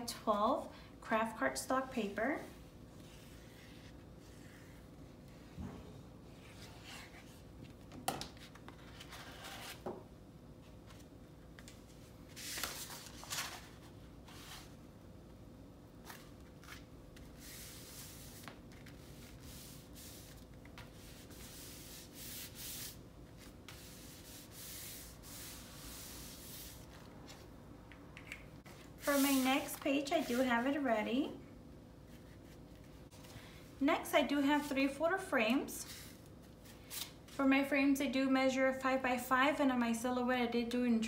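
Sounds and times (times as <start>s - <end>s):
hands rubbing paper: 28.8s - 30.7s.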